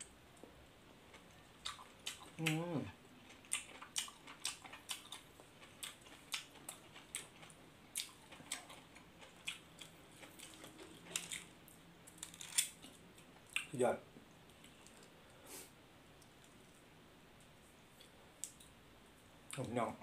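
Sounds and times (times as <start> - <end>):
person chewing food: 0.4 - 13.7.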